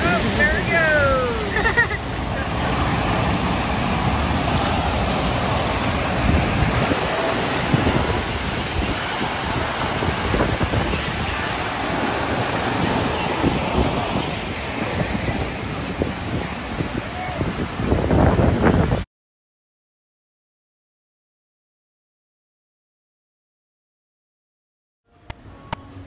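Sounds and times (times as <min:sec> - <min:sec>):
wind buffeting microphone: 0:00.0 - 0:19.1.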